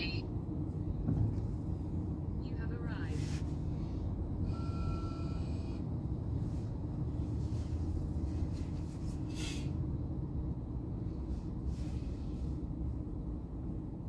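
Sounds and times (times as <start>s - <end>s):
car engine rumble: 0.0s - 14.0s
road noise: 0.0s - 14.0s
brief hiss: 9.2s - 9.7s.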